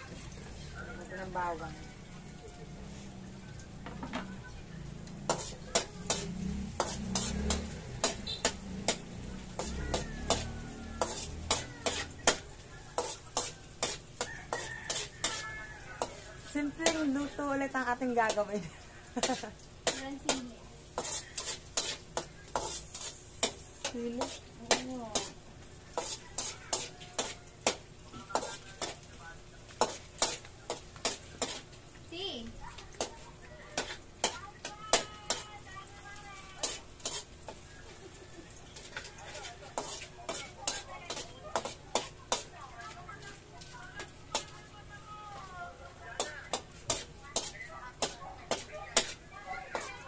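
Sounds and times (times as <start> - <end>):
low sizzle: 0.0 - 50.0
spatula clinking against wok: 5.2 - 17.4, 19.2 - 29.0, 33.8 - 35.6, 38.6 - 42.9, 46.2 - 50.0.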